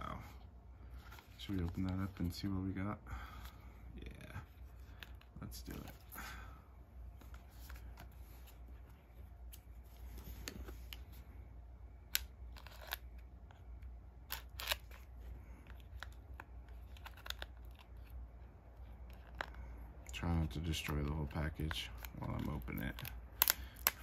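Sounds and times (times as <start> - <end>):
plastic shrink-wrap crinkling: 14.3 - 18.2.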